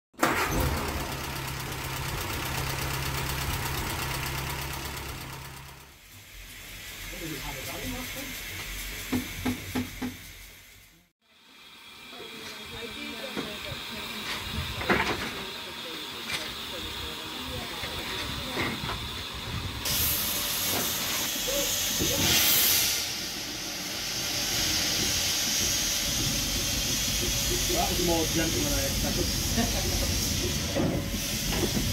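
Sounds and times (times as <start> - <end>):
locomotive steam hissing: 0.2 - 31.9
engine idling with ticking: 1.0 - 5.9.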